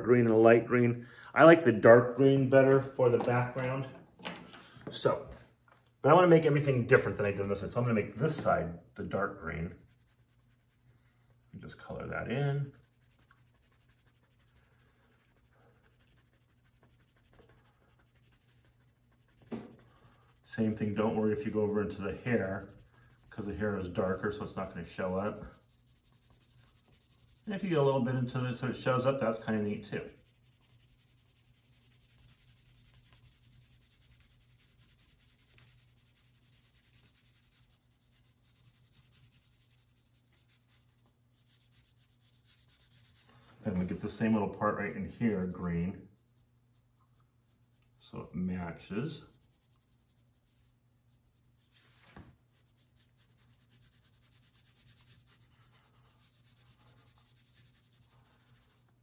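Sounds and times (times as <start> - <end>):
low room hum: 0.0 - 59.0
crayon scratching on paper: 9.8 - 43.2, 52.6 - 58.9.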